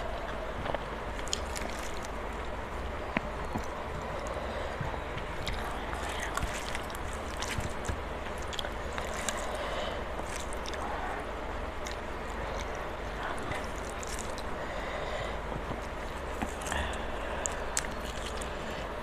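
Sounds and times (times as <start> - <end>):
low hum: 0.0 - 19.0
chewing with mouth clicks: 0.1 - 14.8, 15.6 - 19.0
fingers mixing rice on steel plate: 5.2 - 14.6.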